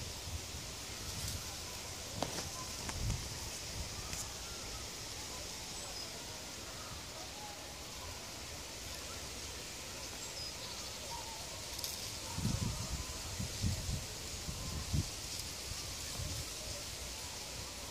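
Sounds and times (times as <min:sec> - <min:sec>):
steady hiss: 0:00.0 - 0:17.9
faint bird chirps: 0:00.9 - 0:13.8.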